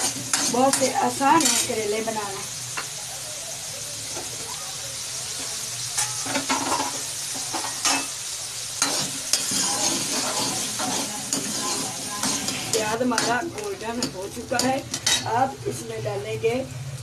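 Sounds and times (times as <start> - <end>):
metal ladle scraping a pan: 0.0 - 1.8, 5.5 - 8.2, 8.8 - 15.4
onions sizzling in hot oil: 0.0 - 17.0.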